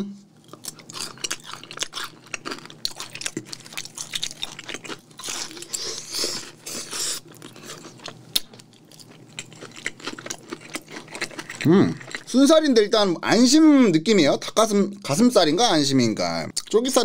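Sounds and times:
close-up chewing with mouth clicks: 0:00.4 - 0:12.3.

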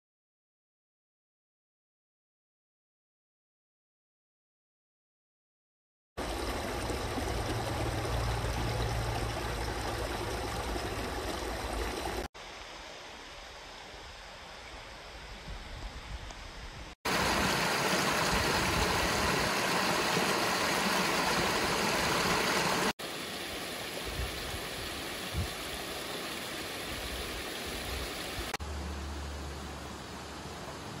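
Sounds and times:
mountain stream rushing: 0:06.2 - 0:14.2, 0:17.0 - 0:31.0.

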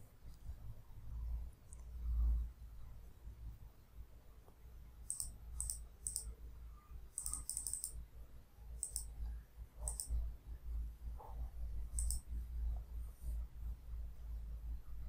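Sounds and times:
computer mouse button clicking: 0:05.1 - 0:06.3, 0:07.2 - 0:08.0, 0:08.8 - 0:09.1, 0:09.8 - 0:10.2, 0:12.0 - 0:12.2.

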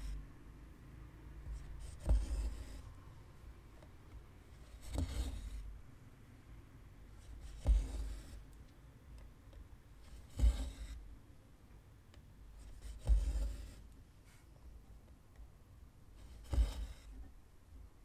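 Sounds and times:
needle thumping through fabric: 0:01.4 - 0:02.8, 0:07.4 - 0:08.4, 0:10.0 - 0:11.0, 0:12.7 - 0:13.8
thread rasping through fabric: 0:01.4 - 0:03.0, 0:03.8 - 0:05.7, 0:07.2 - 0:08.6, 0:09.2 - 0:11.0, 0:12.2 - 0:14.0, 0:16.2 - 0:17.3.

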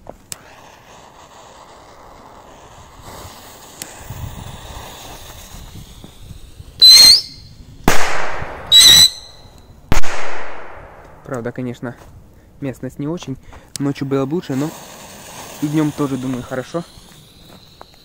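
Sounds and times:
fuse hissing: 0:00.3 - 0:07.6, 0:14.0 - 0:18.0
rocket whistling: 0:00.4 - 0:10.2, 0:15.0 - 0:18.0.

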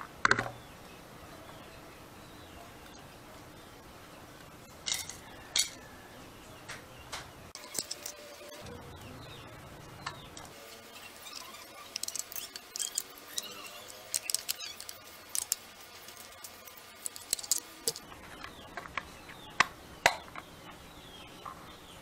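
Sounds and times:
plastic clicks and rattles: 0:14.1 - 0:15.6.

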